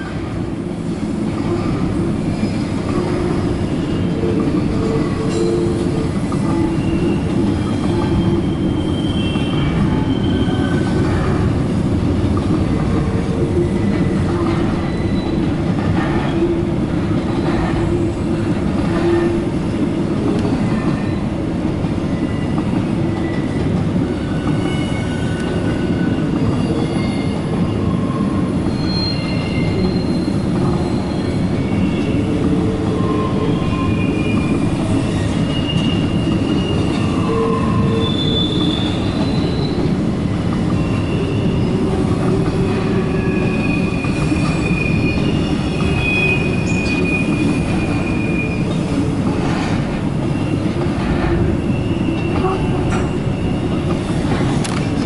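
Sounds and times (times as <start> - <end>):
train wheels rumbling on rail: 0.0 - 55.0
high-pitched wheel squeals: 5.2 - 11.0, 24.2 - 39.9, 50.4 - 53.8.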